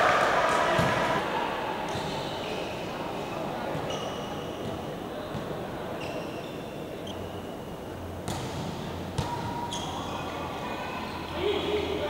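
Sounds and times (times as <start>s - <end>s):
volleyball hits: 0.0s - 1.2s, 8.2s - 9.6s
murmur in hall: 0.0s - 12.0s
sneaker squeaks: 1.9s - 3.0s, 3.7s - 10.4s.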